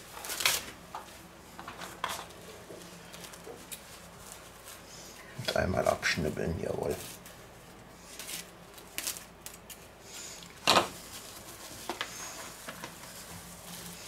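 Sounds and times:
cling film crinkling: 0.0 - 14.0.

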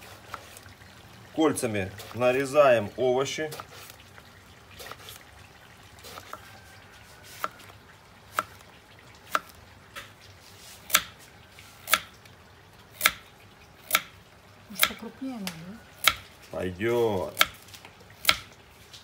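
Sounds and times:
knife slicing vegetables: 7.2 - 7.7, 9.3 - 12.1.

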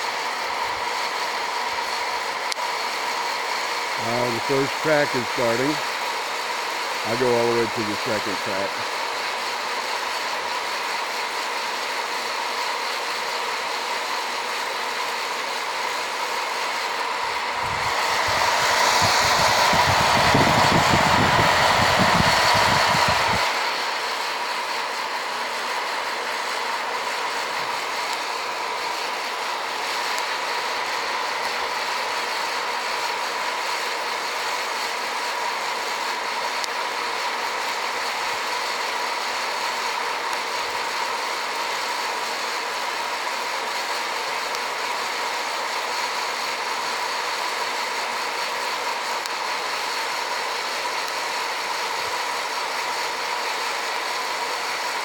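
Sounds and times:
coffee roaster fan rushing: 0.0 - 55.0
low rumbling rush: 17.2 - 23.7.

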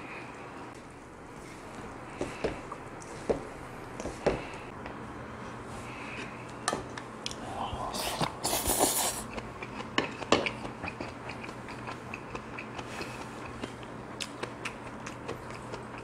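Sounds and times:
wet chewing: 8.5 - 16.0.

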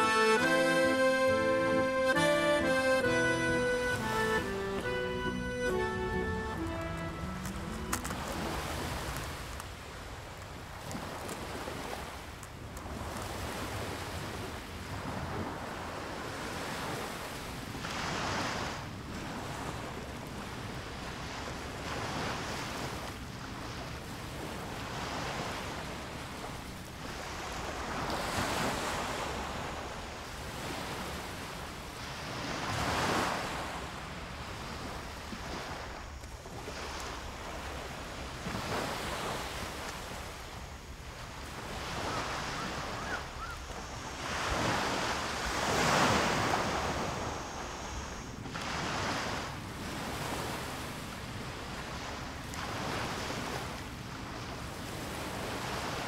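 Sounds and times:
waves washing onto sandy beach: 0.0 - 56.0
wind on microphone: 5.6 - 56.0.

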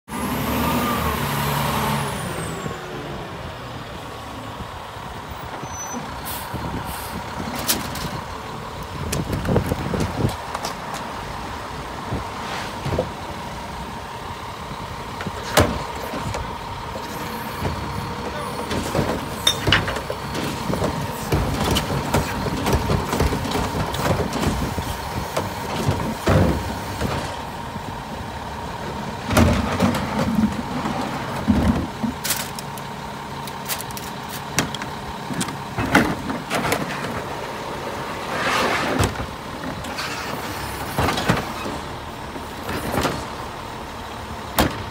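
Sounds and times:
garbage truck whine: 0.1 - 44.9
plastic carts banging: 18.3 - 27.4.

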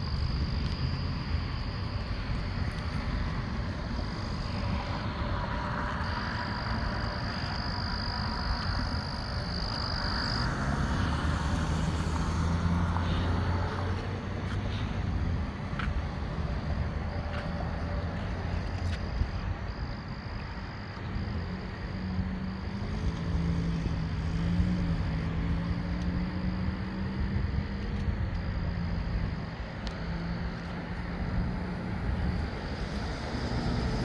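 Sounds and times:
high-pitched insect trill: 0.0 - 14.0
low traffic rumble: 0.0 - 34.0
car driving past on wet road: 10.0 - 14.8.

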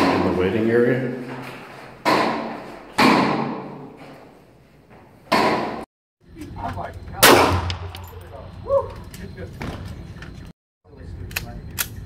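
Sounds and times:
pistol shot echoing indoors: 7.2 - 8.0.

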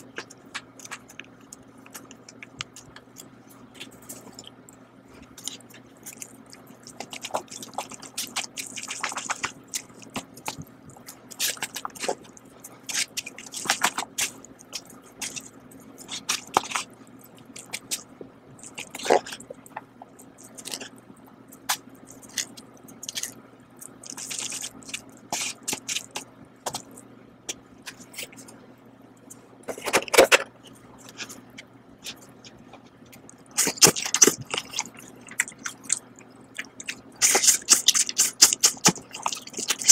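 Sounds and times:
faint steady hum: 0.0 - 39.9
plastic packaging crinkling: 36.7 - 39.9.

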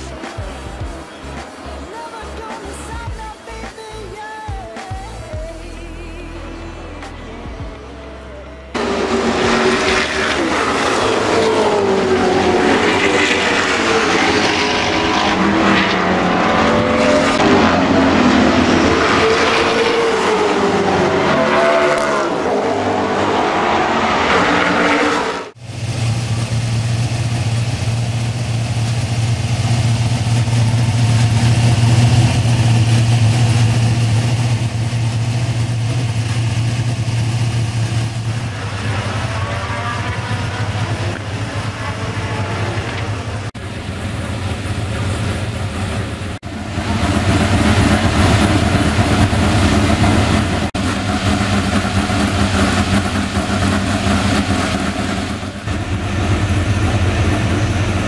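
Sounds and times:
race cars passing: 0.0 - 58.0
race car engine idling: 25.6 - 58.0.

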